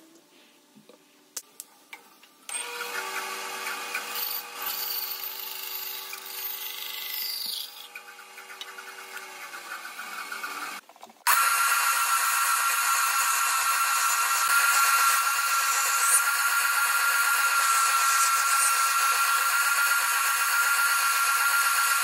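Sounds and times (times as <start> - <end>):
bandsaw cutting wood: 2.5 - 7.2, 7.9 - 22.0
spindle sander running: 7.9 - 22.0.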